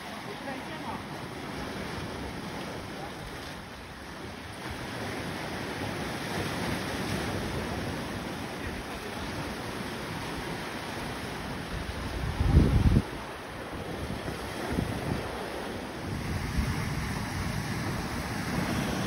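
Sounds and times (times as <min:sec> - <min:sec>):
sea waves washing over rocks: 0:00.0 - 0:19.0
wind on microphone: 0:04.7 - 0:19.0.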